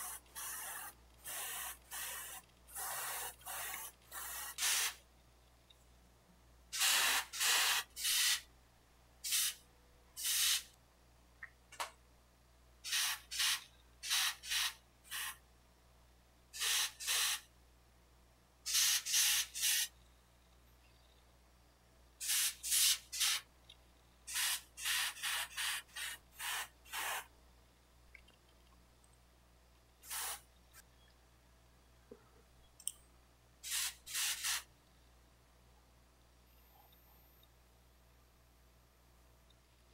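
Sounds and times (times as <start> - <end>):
airbrush hissing bursts: 0.0 - 5.0, 6.8 - 8.5, 9.2 - 9.6, 10.2 - 10.7, 12.8 - 15.4, 16.6 - 17.4, 18.7 - 19.9, 22.2 - 23.5, 24.3 - 27.3, 30.0 - 30.4, 33.6 - 34.7.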